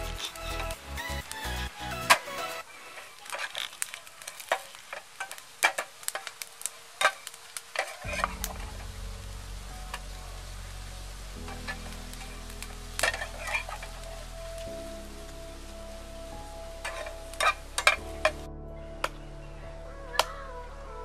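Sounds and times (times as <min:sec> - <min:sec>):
light sizzle: 0:00.0 - 0:21.0
low steady hum: 0:08.0 - 0:21.0
metal spatula scraping frying pan: 0:13.0 - 0:14.0.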